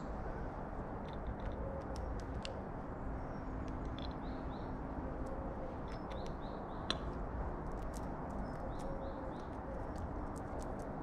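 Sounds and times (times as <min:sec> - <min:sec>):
outdoor background rumble: 0:00.0 - 0:11.0
small birds chirping: 0:07.9 - 0:10.9.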